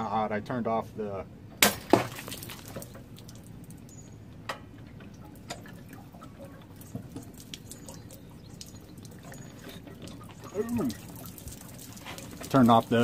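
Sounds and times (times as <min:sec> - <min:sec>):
water dripping and trickling: 0:01.8 - 0:13.0.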